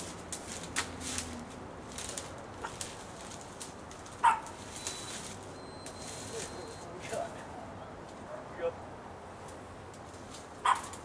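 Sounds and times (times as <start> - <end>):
dog barking: 4.2 - 4.5, 10.6 - 10.9.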